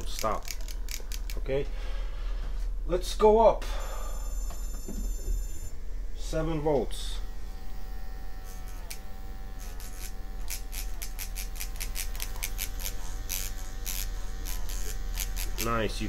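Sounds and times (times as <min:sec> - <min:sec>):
short scratchy clicks: 0:00.0 - 0:01.4, 0:08.4 - 0:15.8
tattoo pen motor buzzing: 0:00.0 - 0:01.4, 0:03.8 - 0:16.0.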